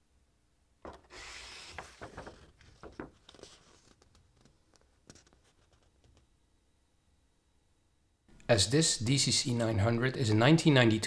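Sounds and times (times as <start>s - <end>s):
page turning swish: 1.0s - 4.2s
paper crinkling: 1.2s - 6.2s.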